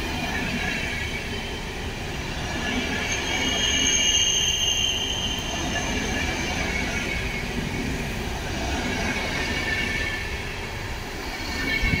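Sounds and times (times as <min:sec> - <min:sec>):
steel wheels rumbling on rails: 0:00.0 - 0:12.0
faint high wheel squeal: 0:00.5 - 0:07.6.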